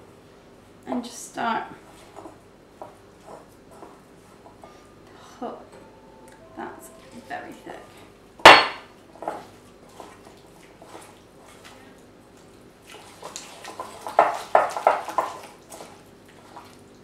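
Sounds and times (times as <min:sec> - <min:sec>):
loud knock on glass bowl: 0:08.5 - 0:08.9.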